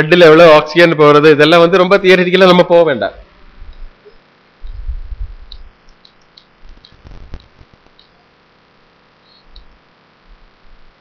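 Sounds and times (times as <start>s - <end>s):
soft low thumps: 4.6s - 5.8s
small sharp clicks: 5.5s - 8.2s, 9.4s - 9.8s.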